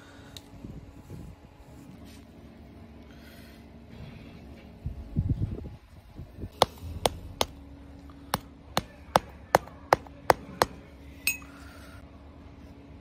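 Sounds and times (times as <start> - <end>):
wooden stick tapping a sand mould: 8.4 - 10.8.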